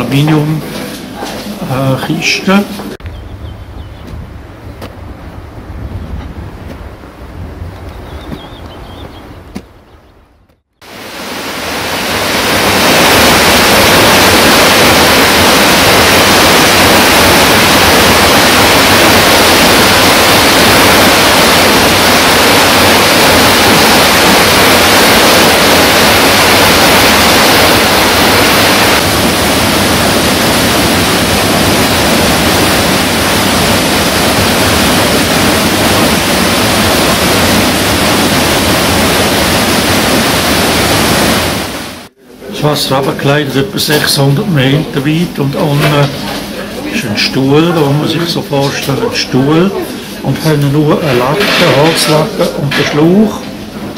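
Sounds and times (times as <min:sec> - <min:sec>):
waterfall rushing: 0:10.8 - 0:42.1.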